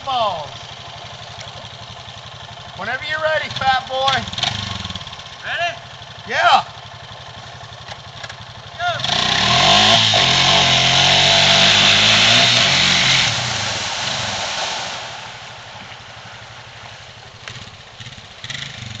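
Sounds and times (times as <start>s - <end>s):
quad bike engine revving: 0.0s - 19.0s
water spray rushing: 9.1s - 17.8s.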